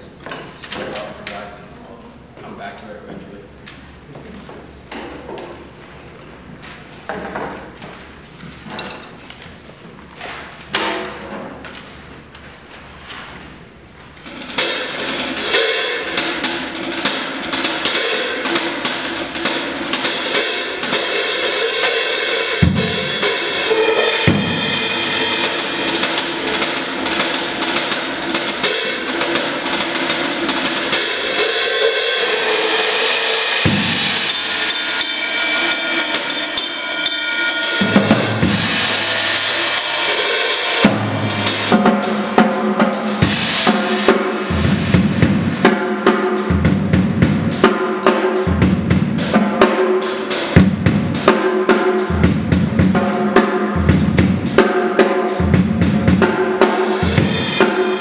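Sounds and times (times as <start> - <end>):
drum kit solo: 13.6 - 58.0.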